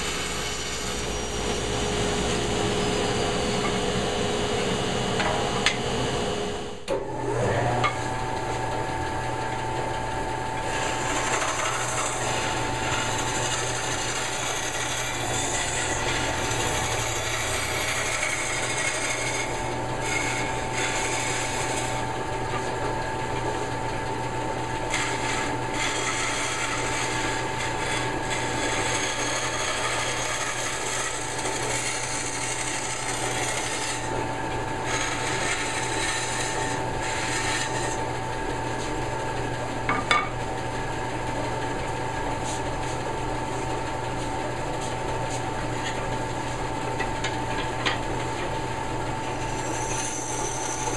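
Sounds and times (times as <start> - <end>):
bandsaw cutting wood: 0.0 - 8.2, 10.4 - 23.1, 24.5 - 39.0, 49.0 - 50.9.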